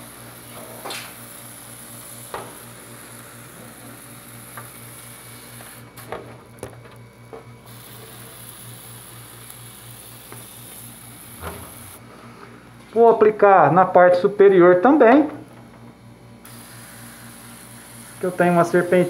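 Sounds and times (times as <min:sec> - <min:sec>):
steady low hum: 0:00.0 - 0:19.0
spray bottle spritzing: 0:07.7 - 0:12.0.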